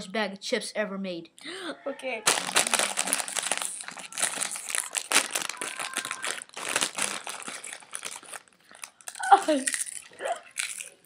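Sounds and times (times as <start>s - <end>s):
plastic bag crinkling: 2.2s - 11.0s.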